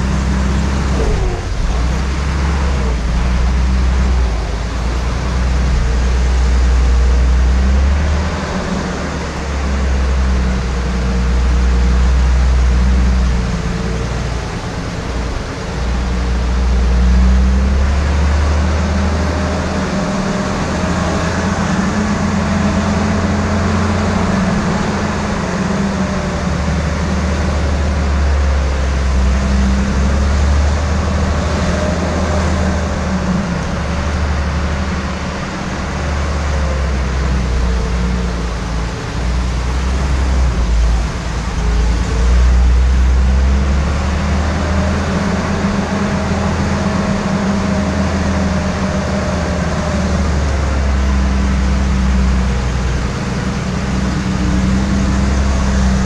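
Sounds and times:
engine running at low speed: 0:00.0 - 0:56.0.

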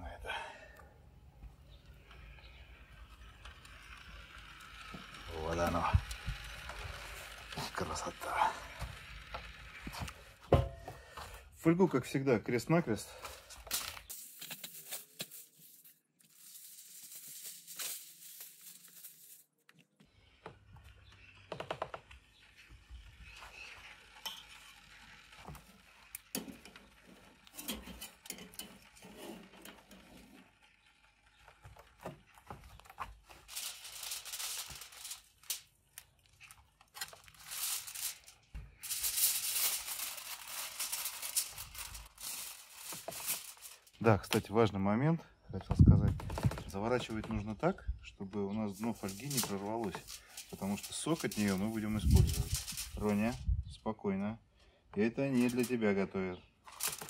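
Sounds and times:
aluminium foil crinkling: 0:13.1 - 0:20.0, 0:22.5 - 0:44.5, 0:48.7 - 0:53.4, 0:55.4 - 0:55.8, 0:56.6 - 0:57.0.

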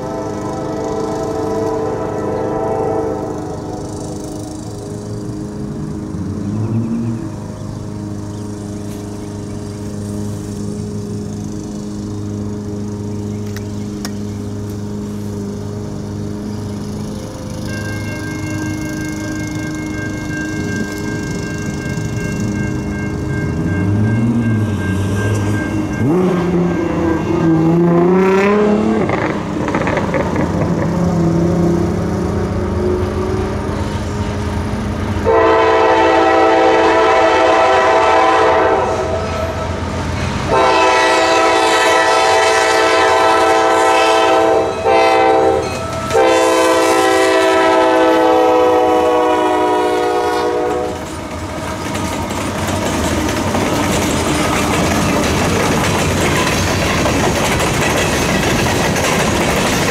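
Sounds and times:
train air horn blasts: 0:00.0 - 0:04.1, 0:35.2 - 0:51.1
train rumble and wheel clatter: 0:00.0 - 0:59.9
low drone rising in pitch: 0:19.0 - 0:35.3.

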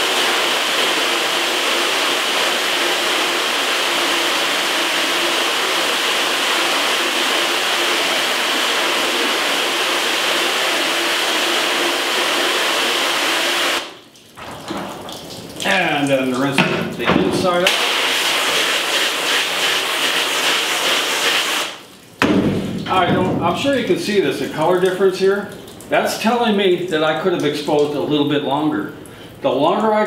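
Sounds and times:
hose nozzle spraying water: 0:00.0 - 0:22.0.

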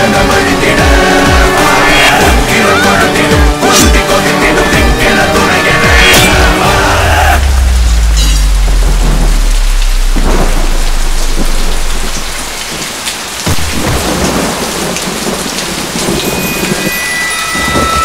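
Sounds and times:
heavy rain pouring: 0:00.0 - 0:18.0
thunder rumble: 0:05.9 - 0:18.0
sudden crack: 0:07.4 - 0:15.0.

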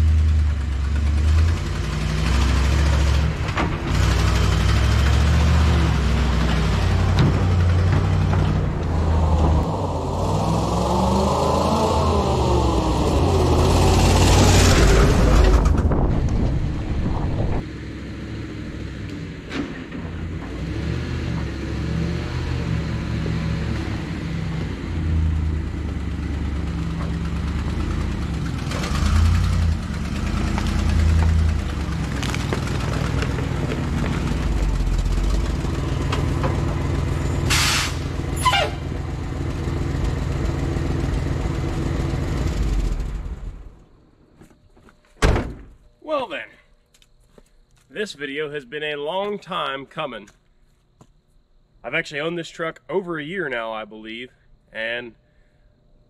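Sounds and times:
truck engine: 0:00.0 - 0:44.3
tyres on gravel: 0:25.8 - 0:38.9
short air hisses: 0:37.5 - 0:38.1.

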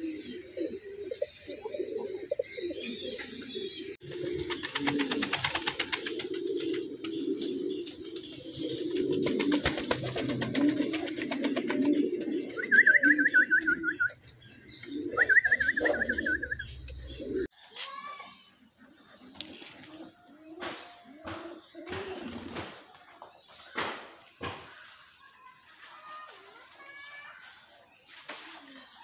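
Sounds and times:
pigeons cooing: 0:00.0 - 0:17.5, 0:18.5 - 0:23.0
bird high trill: 0:08.8 - 0:18.4.

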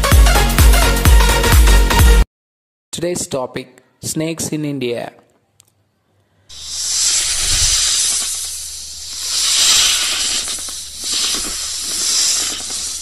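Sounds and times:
snake hissing: 0:06.5 - 0:13.0.

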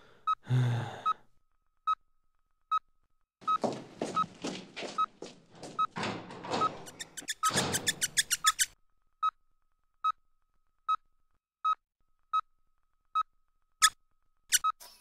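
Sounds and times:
heart monitor beeping: 0:02.7 - 0:07.2.

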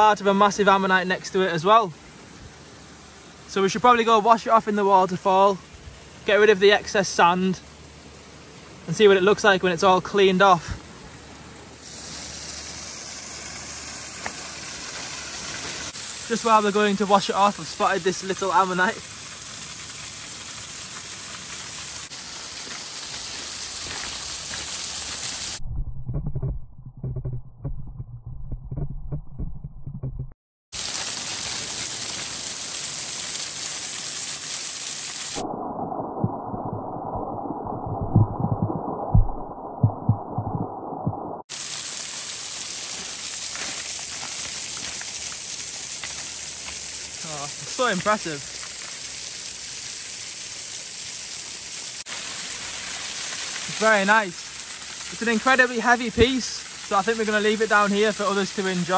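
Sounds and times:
waterfall splashing on shingle: 0:00.0 - 0:25.6, 0:30.7 - 0:35.4, 0:41.4 - 0:58.9
muffled water drumming on camera: 0:20.4 - 0:30.4, 0:35.4 - 0:47.2.

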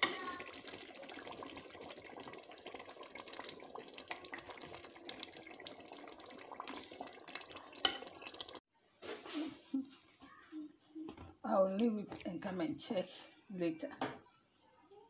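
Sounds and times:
stew bubbling and popping: 0:00.0 - 0:08.7.

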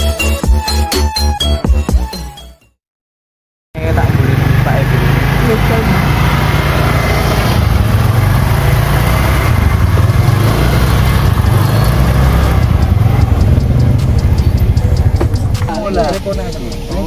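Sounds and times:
scooter engine running: 0:03.8 - 0:16.2.

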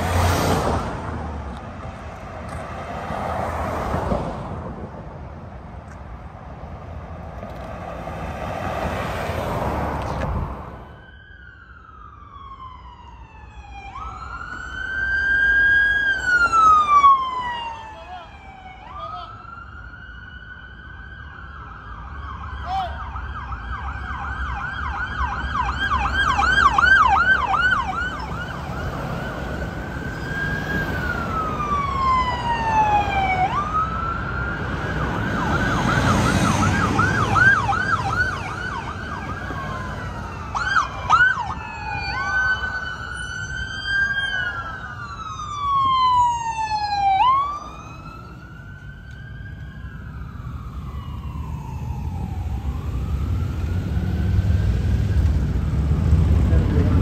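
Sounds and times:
vehicle rushing past: 0:00.0 - 0:05.1, 0:07.0 - 0:11.0, 0:23.8 - 0:57.0
police sirens wailing and yelping: 0:08.9 - 0:57.0.

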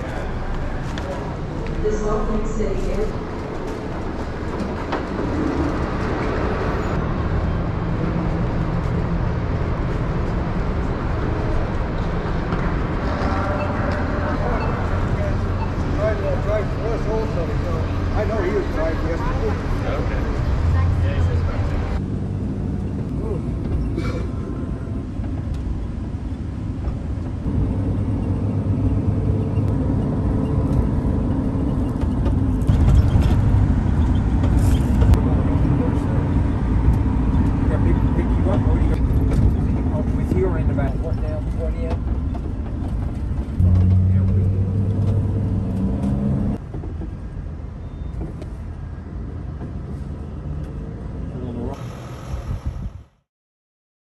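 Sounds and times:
car cabin road noise: 0:00.0 - 0:53.0
rumble of traffic: 0:00.0 - 0:53.3.

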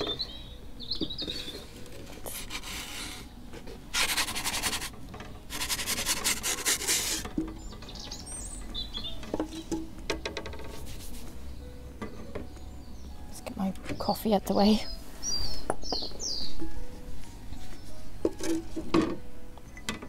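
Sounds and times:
pizza peel scraping on stone: 0:03.9 - 0:04.9, 0:05.5 - 0:07.3.

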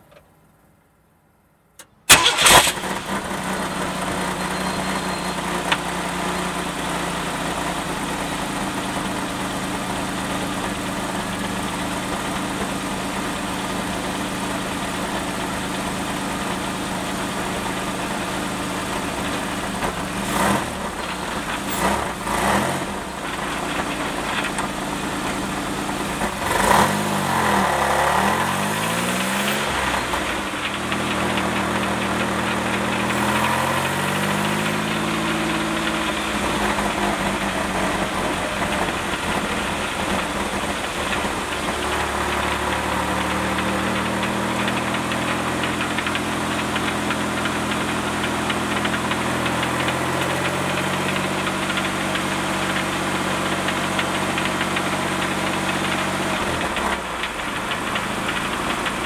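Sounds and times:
car engine revving: 0:15.8 - 0:59.0
muffler rattling: 0:19.1 - 0:26.8, 0:34.2 - 0:59.0.

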